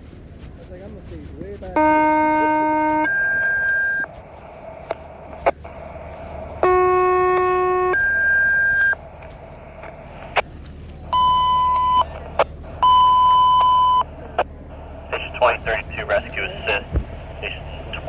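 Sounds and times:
steady hum: 0.0 - 18.0
steady beeps: 1.8 - 4.1, 6.6 - 9.0, 11.1 - 12.1, 12.8 - 14.1
radio alert tones: 1.8 - 9.1, 11.1 - 14.1, 15.0 - 18.0
radio clicks: 2.4 - 14.5.

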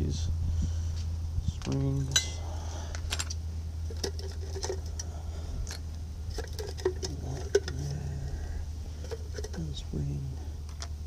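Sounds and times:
steady low hum: 0.0 - 11.0
small metal parts clinking in tin: 1.6 - 8.0.

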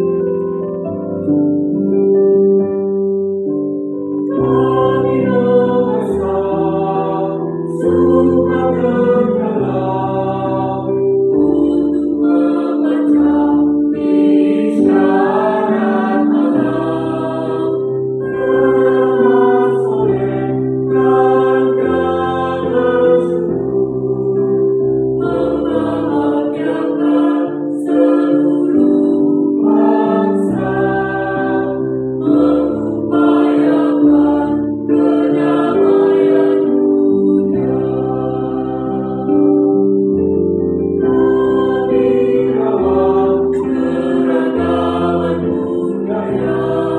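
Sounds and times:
mixed choir singing: 4.2 - 39.9, 40.9 - 46.9.

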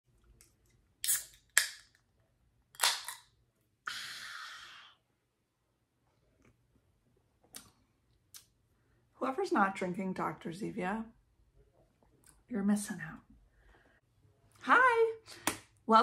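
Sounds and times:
soda can clicks and cracks: 1.0 - 2.0, 2.7 - 3.3.

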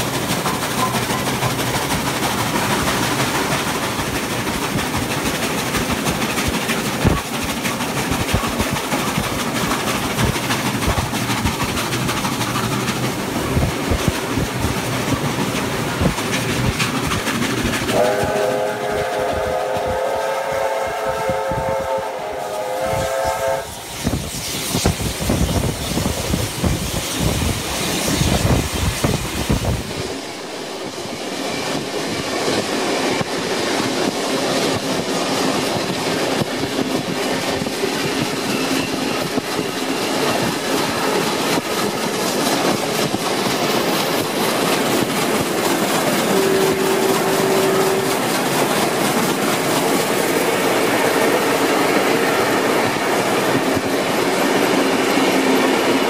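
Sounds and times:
wheels clicking over rail joints: 0.0 - 19.4, 25.7 - 56.0
steam train passing with clatter: 0.0 - 56.0
steam whistle blast: 17.9 - 24.2, 46.2 - 48.3.

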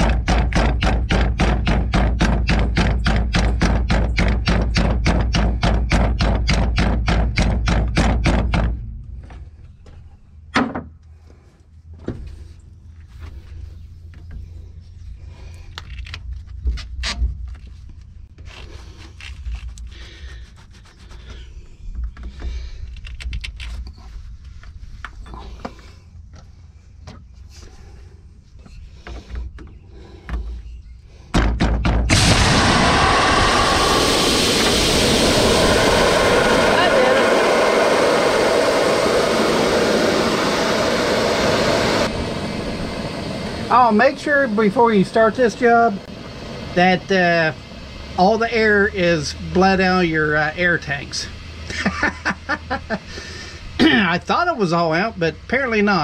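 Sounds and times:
knocks scrapes and rubbing: 16.3 - 22.6
rush of compressed air: 32.1 - 44.9.

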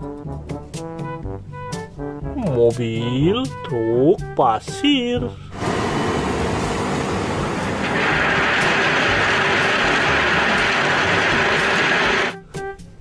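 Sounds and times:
diesel truck engine running: 5.5 - 12.4
crushed stone pouring out: 7.8 - 12.3.

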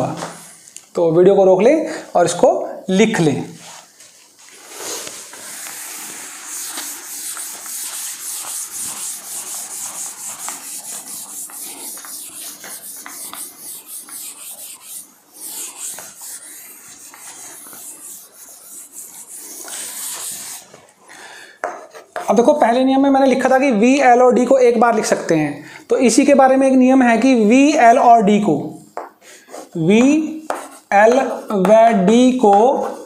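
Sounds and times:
duster rubbing blackboard: 4.6 - 20.8, 30.4 - 31.6.

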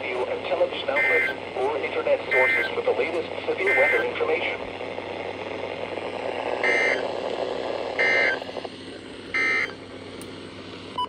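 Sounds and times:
radio hiss: 0.0 - 9.8
buzzy digital data tones: 2.3 - 2.8, 6.4 - 7.2, 7.9 - 8.5.

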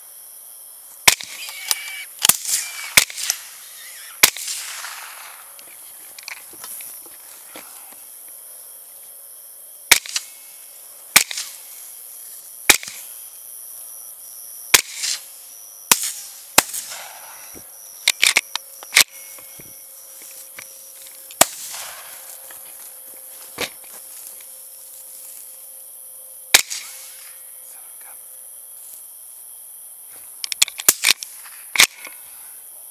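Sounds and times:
rifle shots: 4.2 - 5.5, 21.4 - 22.2.

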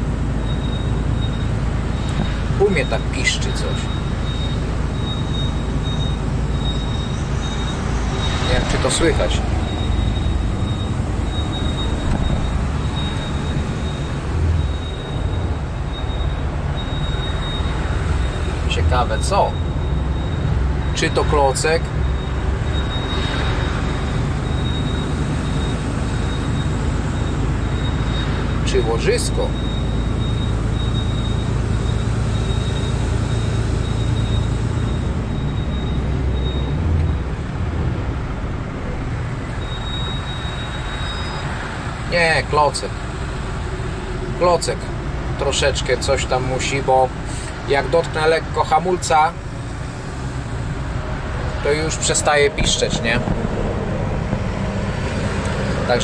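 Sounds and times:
truck rolling rumble: 0.0 - 56.0
high-pitched brake squeal: 3.3 - 14.1, 39.5 - 41.7
faint high-pitched brake squeak: 39.6 - 41.6.

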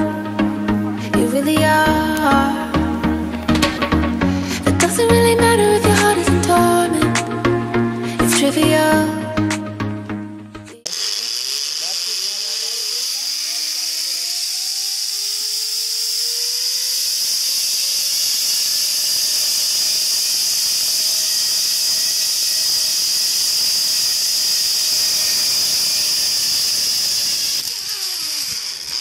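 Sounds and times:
cicada chorus drone: 10.9 - 29.0.

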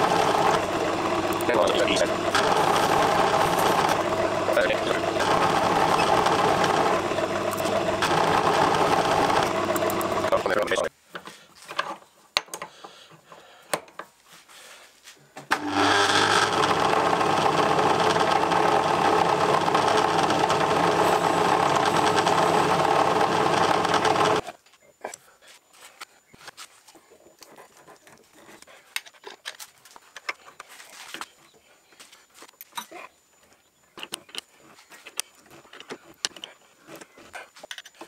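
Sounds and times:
metal lathe running: 0.0 - 10.9, 15.5 - 24.4
tools clicking and knocking: 11.7 - 12.8.

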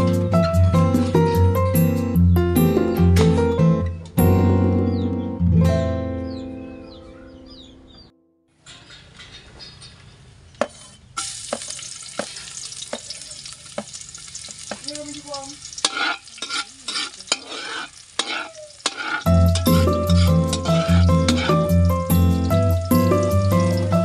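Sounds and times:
background music: 0.0 - 8.1, 19.3 - 24.0
metal ladle scraping and clinking: 8.6 - 12.6, 15.7 - 22.6
garlic sizzling in a wok: 10.7 - 24.0.

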